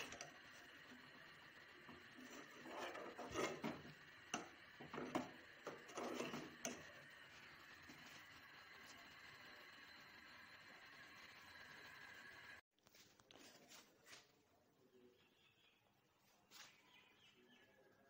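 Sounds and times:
spoon scraping metal pot: 0:01.9 - 0:06.9.

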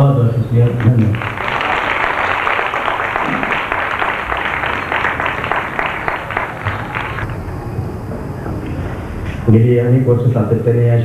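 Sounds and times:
audience applauding: 0:00.5 - 0:07.6.

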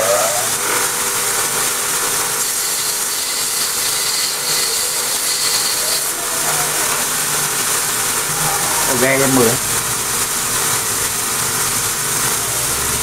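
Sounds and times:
belt grinder grinding metal: 0:00.0 - 0:12.4.

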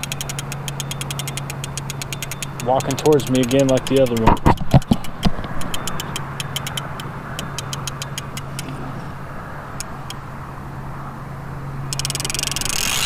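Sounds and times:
fishing reel clicker ticking: 0:00.0 - 0:04.3, 0:05.6 - 0:08.6, 0:11.9 - 0:13.0
fast reel ratcheting: 0:00.0 - 0:08.6, 0:11.9 - 0:13.0.

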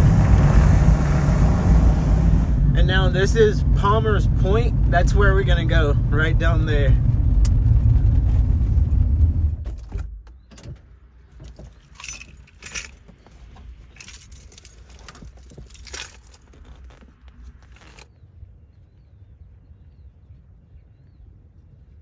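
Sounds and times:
van engine running: 0:00.0 - 0:10.0, 0:10.8 - 0:18.0
keys jangling: 0:11.4 - 0:18.1.

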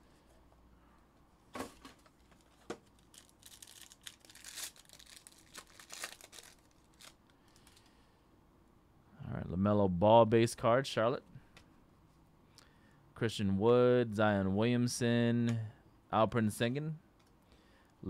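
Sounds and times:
foil wrapper crinkling and tearing: 0:02.4 - 0:07.9.

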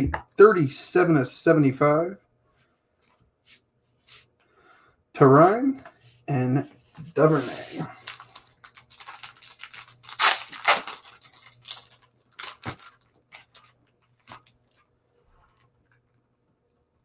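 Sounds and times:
cards and packaging rustling: 0:07.3 - 0:15.7.

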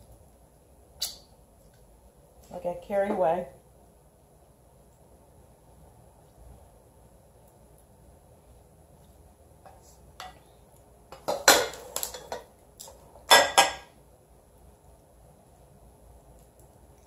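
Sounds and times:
cookware clattering: 0:11.2 - 0:12.5, 0:13.2 - 0:13.9.

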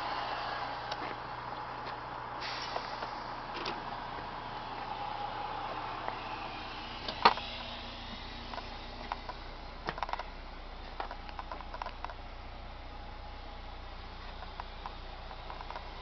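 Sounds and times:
small clicks and knocks: 0:08.5 - 0:10.3, 0:10.9 - 0:12.2, 0:14.2 - 0:15.9.

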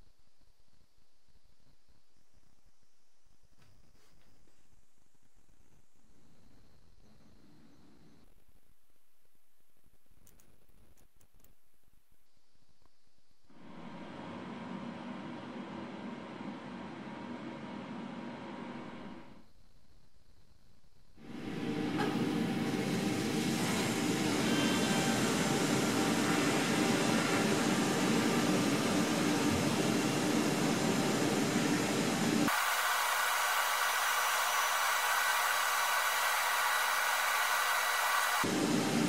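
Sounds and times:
abrasive blasting hiss: 0:21.2 - 0:39.0.

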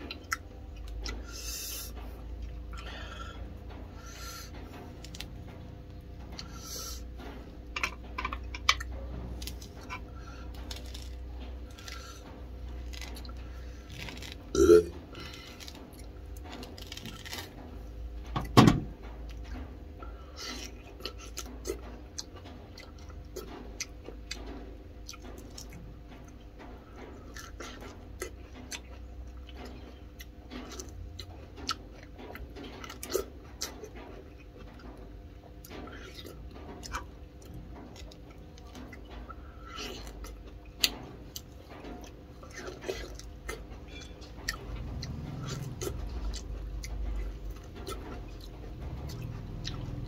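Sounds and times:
chewing: 0:00.0 - 0:03.4, 0:06.2 - 0:17.6, 0:19.3 - 0:50.0
peeling fruit by hand: 0:00.0 - 0:50.0
steady low hum: 0:00.0 - 0:50.0.

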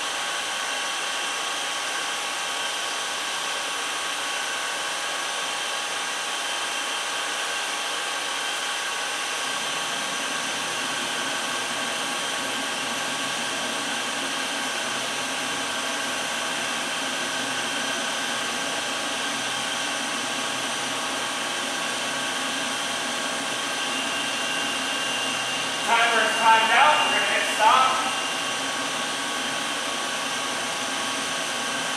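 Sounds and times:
oven fans whirring: 0:09.2 - 0:31.9
whining tones: 0:21.1 - 0:31.9.

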